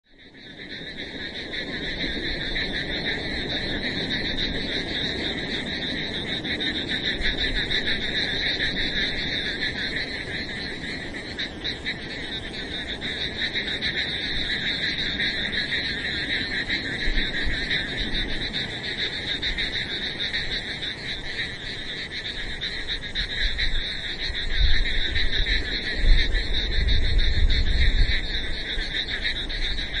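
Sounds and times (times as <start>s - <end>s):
frogs calling: 0.1s - 30.0s.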